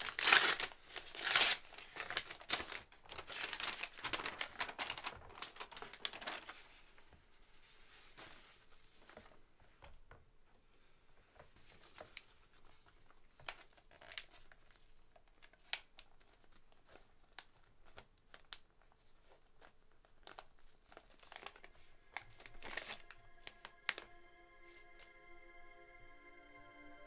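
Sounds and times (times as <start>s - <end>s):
paper rustling and crinkling: 0.0s - 10.1s, 11.3s - 25.1s
soft music tones: 21.3s - 27.0s.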